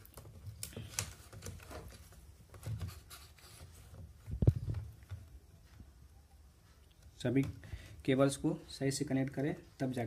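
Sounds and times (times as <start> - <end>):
hands handling wires clicks: 0.0 - 2.9.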